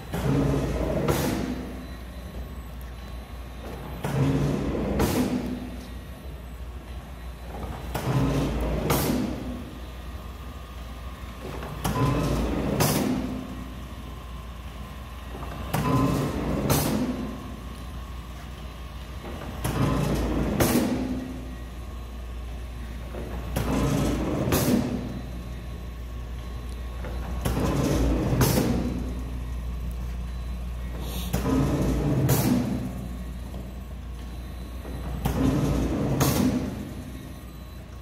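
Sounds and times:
machine drive humming: 0:00.0 - 0:38.0.

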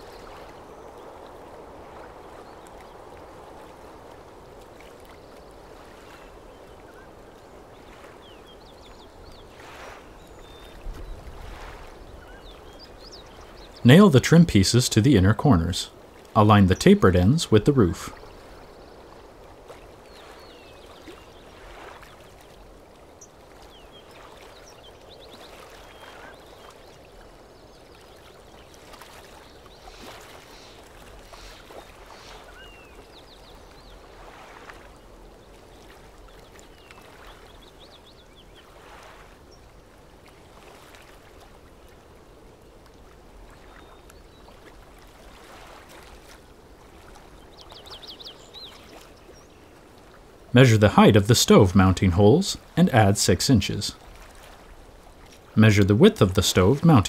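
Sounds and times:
soft steady wash: 0:00.0 - 0:57.0
faint bird chirps: 0:12.0 - 0:13.9, 0:23.2 - 0:34.2.

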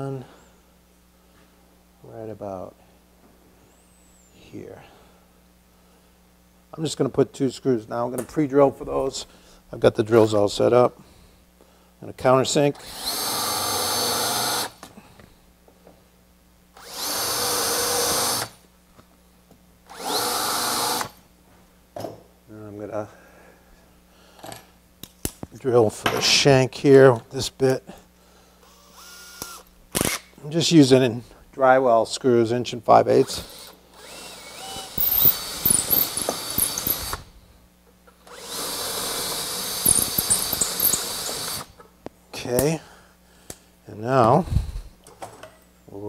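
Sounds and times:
cordless drill whining: 0:12.8 - 0:14.8, 0:16.8 - 0:18.6, 0:19.9 - 0:21.2, 0:28.6 - 0:30.2, 0:33.3 - 0:37.3, 0:38.2 - 0:41.8.

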